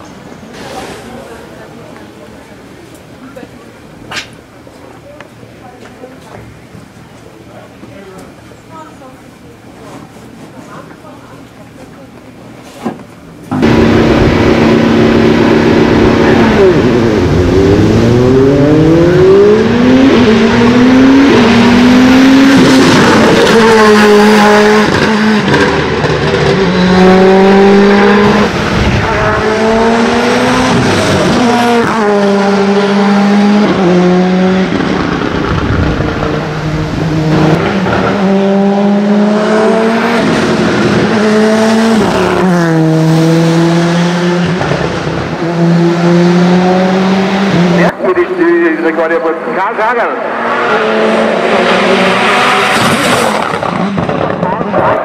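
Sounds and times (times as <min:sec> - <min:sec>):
race car engine accelerating: 0:13.5 - 0:55.0.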